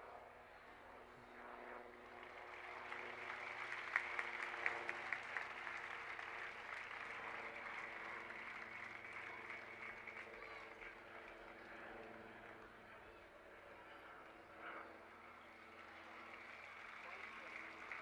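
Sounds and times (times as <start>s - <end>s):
crowd applauding: 2.2s - 11.7s, 15.5s - 18.0s.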